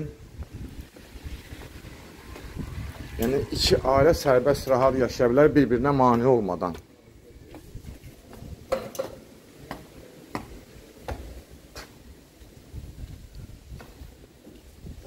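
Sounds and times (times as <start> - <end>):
footsteps on concrete stairs: 0.4 - 3.1, 6.0 - 8.9, 9.6 - 14.7.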